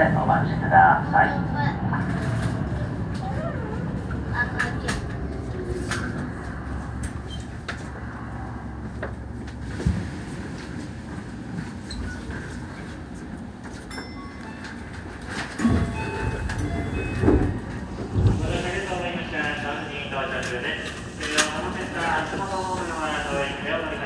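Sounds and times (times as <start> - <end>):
train wheels rumbling on rail: 0.0 - 24.0
rail-joint clicks: 13.6 - 17.8.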